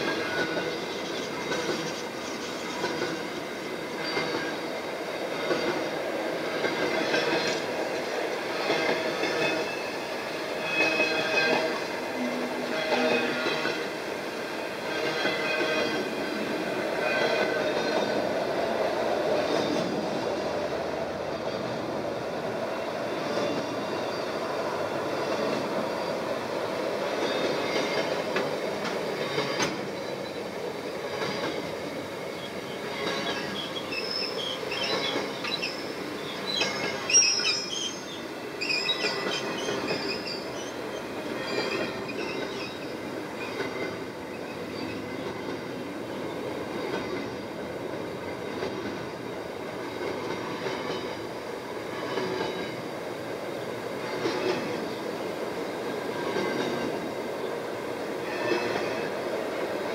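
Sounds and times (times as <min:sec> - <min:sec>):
train wagons rumbling past: 0:00.0 - 0:59.9
high-pitched wheel squeals: 0:10.6 - 0:13.9, 0:32.5 - 0:45.2.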